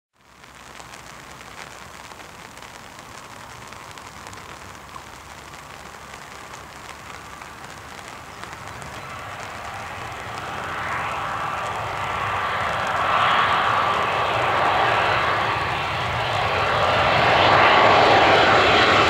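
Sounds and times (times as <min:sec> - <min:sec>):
small crackles: 0:00.1 - 0:19.0
distant jet airliner rushing: 0:06.4 - 0:19.0.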